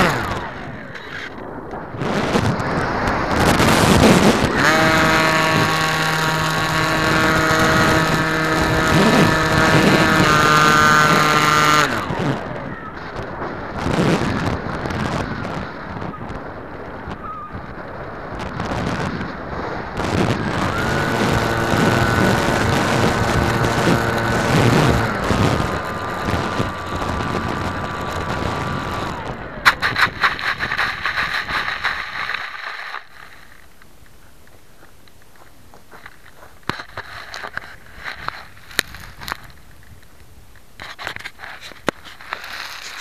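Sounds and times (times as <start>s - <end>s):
model aircraft motor whining: 0.0s - 1.5s, 2.1s - 16.1s, 18.5s - 32.5s
rattling and scraping in dry grass: 0.0s - 43.0s.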